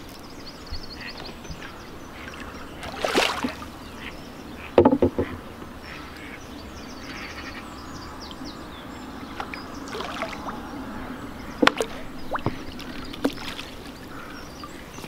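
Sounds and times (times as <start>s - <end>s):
fish splashing at water surface: 2.8s - 3.7s.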